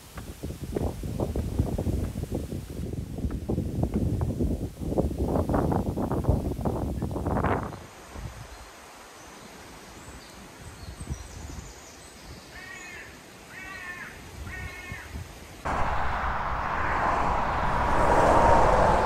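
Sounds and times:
lorry passing: 0:15.7 - 0:19.0
road traffic: 0:15.7 - 0:19.0.

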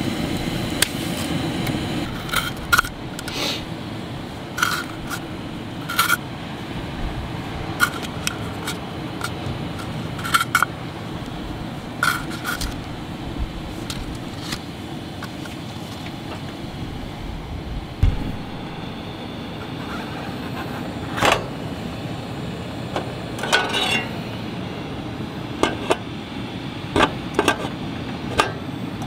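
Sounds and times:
wind rumble on microphone: 0:11.4 - 0:14.4, 0:16.5 - 0:20.6
dull thump: 0:18.0 - 0:19.7.

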